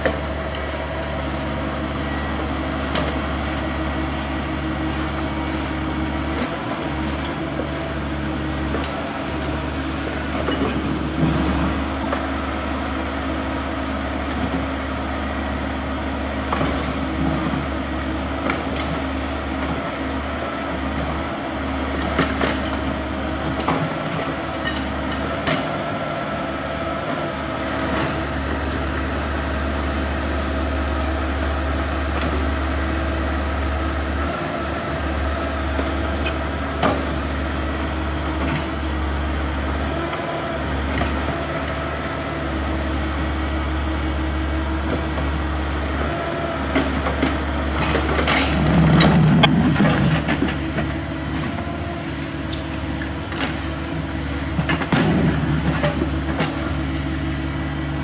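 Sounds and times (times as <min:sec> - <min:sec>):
excavator diesel engine: 0:00.0 - 0:58.0.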